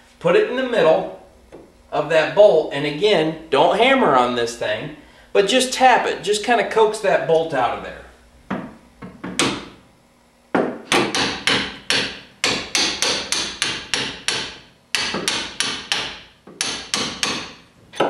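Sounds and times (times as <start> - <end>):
hammer tapping metal punch: 10.6 - 18.0.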